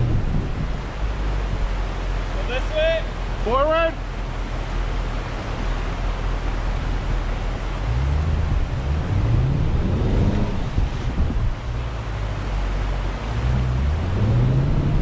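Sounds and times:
wind on microphone: 0:00.0 - 0:02.0, 0:05.4 - 0:15.0
suv engine revving: 0:00.0 - 0:02.2, 0:07.4 - 0:15.0
river water rushing: 0:00.0 - 0:15.0.

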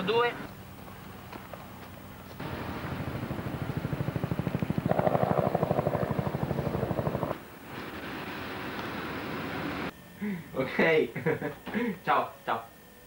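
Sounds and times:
helicopter rotor beating: 0:02.4 - 0:07.4.

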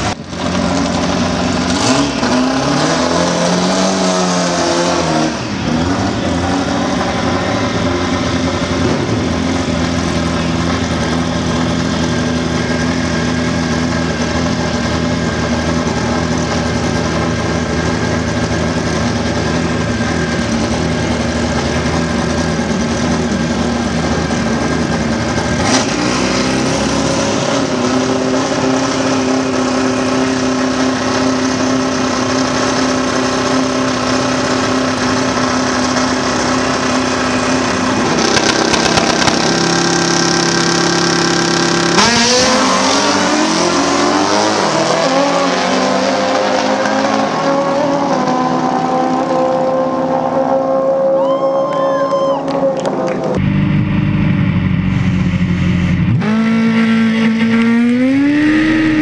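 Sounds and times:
motorcycle engine revving: 0:00.0 - 0:51.1, 0:52.6 - 0:59.0
sharp crack: 0:38.1 - 0:39.9.

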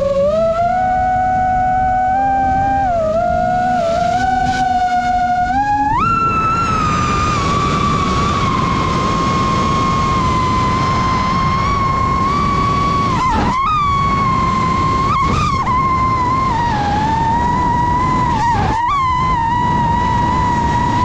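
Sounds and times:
drone motors whining: 0:00.0 - 0:21.0
steady rushing noise: 0:00.0 - 0:21.0.

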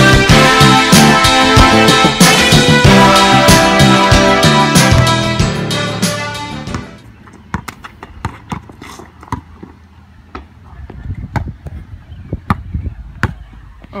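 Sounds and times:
basketball bouncing on asphalt: 0:06.7 - 0:14.0.

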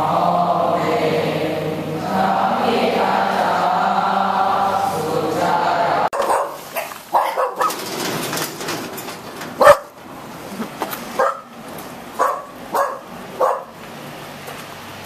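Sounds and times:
group chanting: 0:00.0 - 0:06.2
dog barking: 0:06.1 - 0:07.8, 0:09.6 - 0:10.0, 0:11.2 - 0:11.6, 0:12.2 - 0:13.8.

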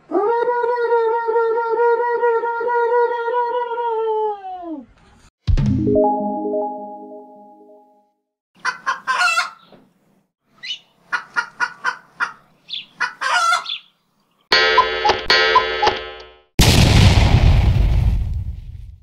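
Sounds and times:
chicken clucking: 0:08.6 - 0:09.8, 0:10.6 - 0:13.9
sudden loud bang: 0:16.6 - 0:19.0.

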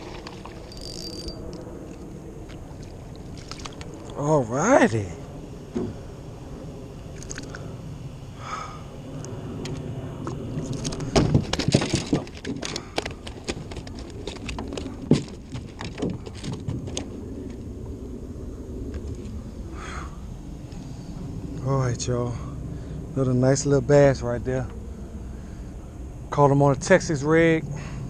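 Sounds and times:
fishing gear clattering on boat floor: 0:00.0 - 0:01.6, 0:10.6 - 0:17.1.

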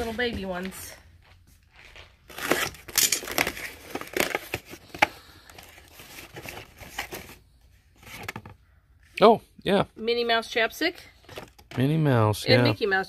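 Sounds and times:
cardboard rustling and crinkling: 0:01.7 - 0:08.6.

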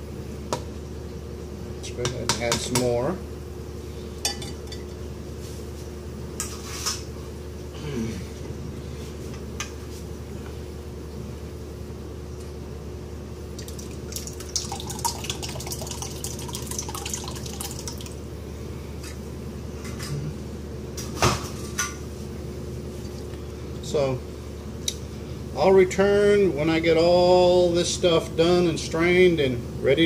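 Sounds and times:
steady low hum: 0:00.0 - 0:30.0
liquid pouring and dripping: 0:13.6 - 0:18.2.

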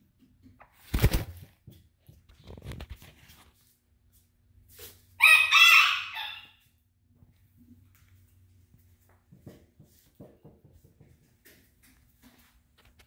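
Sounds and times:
chicken calling: 0:05.2 - 0:06.7.

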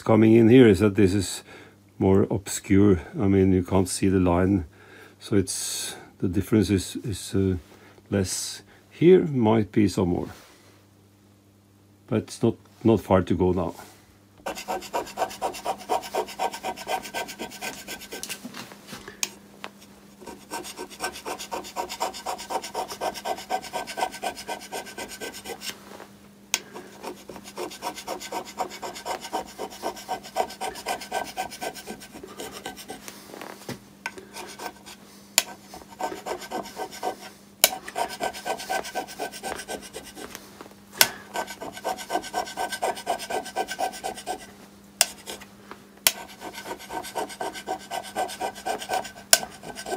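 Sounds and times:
hand scraper scraping metal: 0:14.4 - 0:18.4, 0:20.2 - 0:25.8, 0:26.6 - 0:33.0, 0:34.4 - 0:40.4, 0:41.3 - 0:45.4, 0:46.1 - 0:49.9.

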